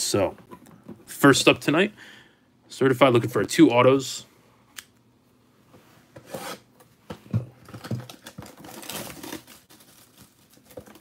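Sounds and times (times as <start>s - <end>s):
plastic crackles: 7.6s - 11.0s
shrink wrap rustling and tearing: 7.6s - 11.0s.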